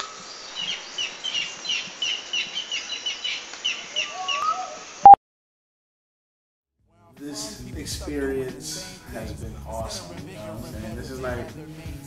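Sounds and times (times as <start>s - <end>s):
bird chirps: 0.0s - 5.2s
rising whistle-like bird call: 4.0s - 5.2s.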